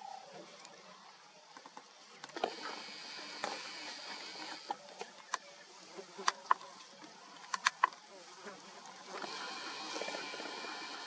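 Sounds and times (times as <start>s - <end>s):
sharp clicks: 7.4s - 8.0s
small motor whirring: 9.1s - 11.0s.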